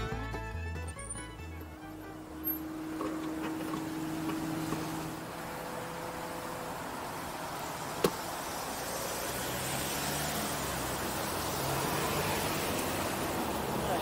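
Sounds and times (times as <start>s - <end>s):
wind and tyre noise: 1.1s - 14.0s.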